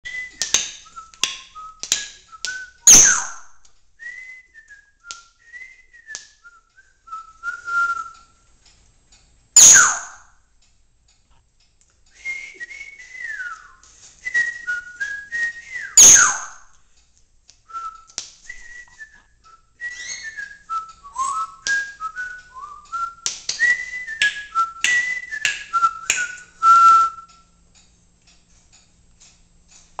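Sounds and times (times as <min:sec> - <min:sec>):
parrot whistling: 0:00.1 - 0:03.4, 0:09.6 - 0:10.2, 0:14.4 - 0:16.6, 0:19.8 - 0:27.2
parrot screeching: 0:02.9 - 0:03.4, 0:09.6 - 0:10.2, 0:16.0 - 0:16.5.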